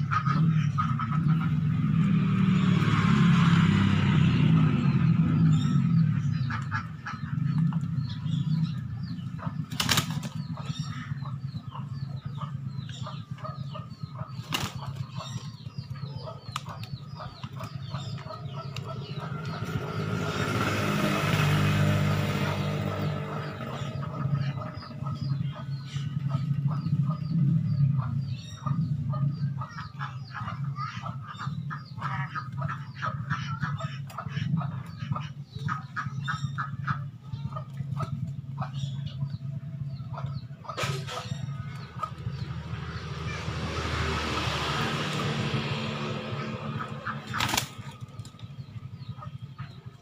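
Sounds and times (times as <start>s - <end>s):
wings flapping: 9.7s - 10.4s, 14.3s - 15.5s, 47.0s - 48.5s.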